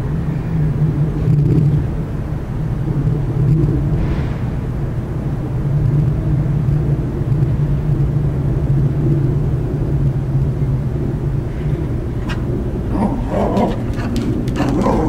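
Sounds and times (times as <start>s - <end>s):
low rumble with constant drone: 0.0s - 15.0s.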